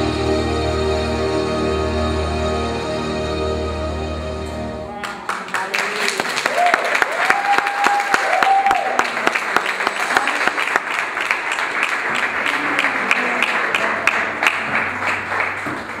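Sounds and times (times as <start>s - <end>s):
congregation applauding: 4.9s - 16.0s.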